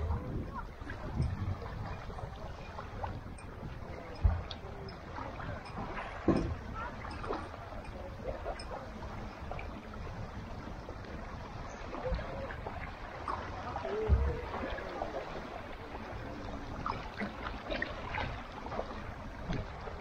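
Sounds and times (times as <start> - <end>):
small waves lapping: 0.0 - 20.0
low thump: 4.1 - 4.5, 5.8 - 6.6, 14.0 - 14.4.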